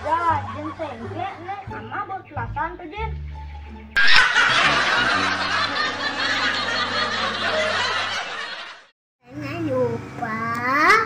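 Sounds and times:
crowd laughing: 0.0 - 1.1, 4.0 - 8.9.

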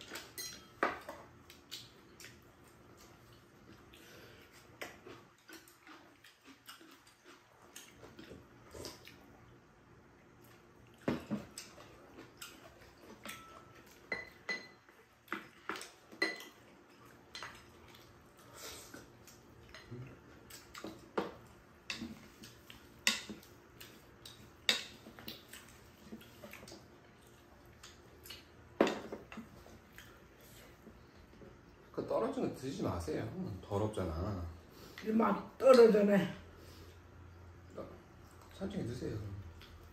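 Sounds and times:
cutlery clinking on bowls: 0.0 - 1.2, 12.5 - 14.9, 15.7 - 16.6, 20.8 - 23.5.

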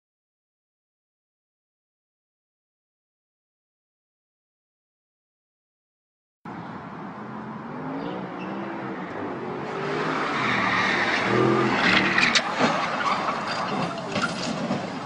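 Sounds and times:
car engines running: 6.5 - 15.0
tyres skidding on asphalt: 7.2 - 15.0.

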